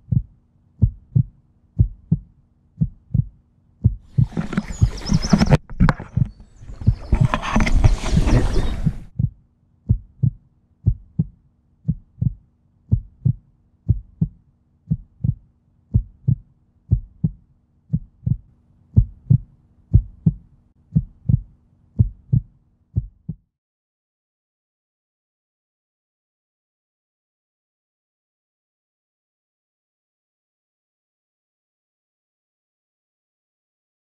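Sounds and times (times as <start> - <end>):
heartbeat low thumps: 0.0 - 23.5
water splashing: 4.1 - 9.1.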